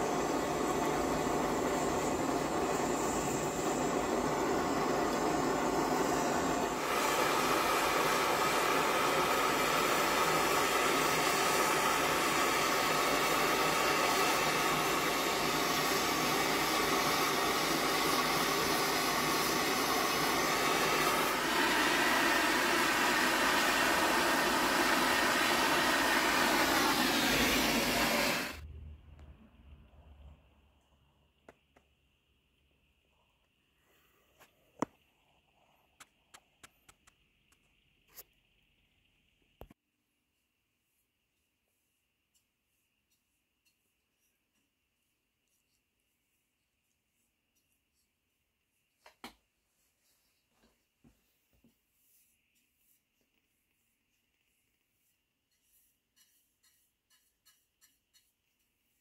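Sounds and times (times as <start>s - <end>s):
gas torch flame hissing: 0.0s - 28.6s.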